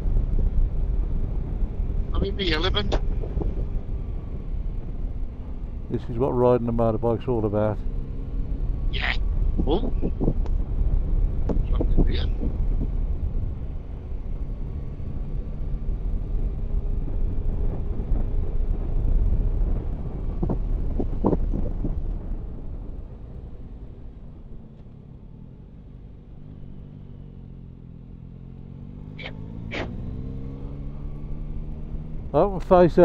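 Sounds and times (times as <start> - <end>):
motorcycle engine: 0.0 - 33.0
wind and road noise: 0.0 - 33.0.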